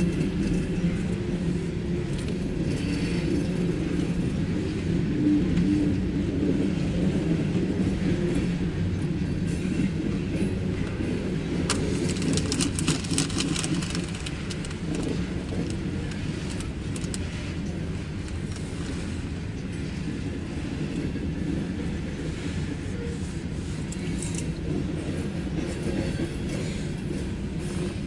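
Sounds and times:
freight train rolling past: 0.0s - 28.0s
wheels clicking and squeaking: 11.7s - 18.7s.

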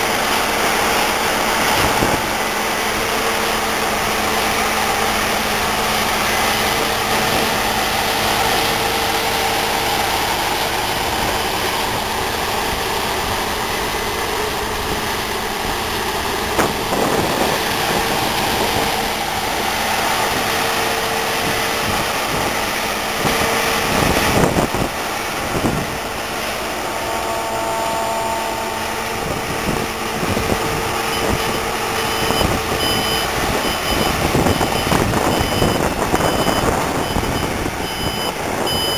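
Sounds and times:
combine harvester running: 0.0s - 38.9s
reversing alarm beeping: 30.7s - 38.9s.

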